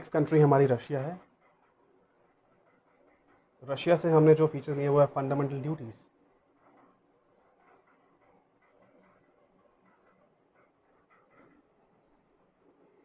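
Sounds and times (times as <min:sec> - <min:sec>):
marker squeaking on whiteboard: 0:06.4 - 0:10.3, 0:10.9 - 0:13.0.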